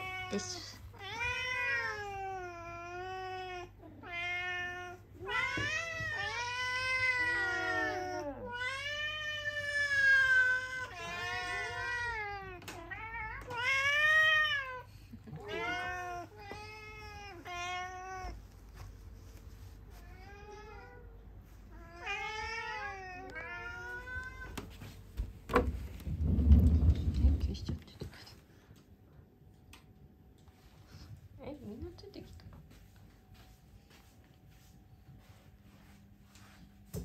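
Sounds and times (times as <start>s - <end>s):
cats meowing: 0.0s - 18.5s, 19.9s - 24.8s.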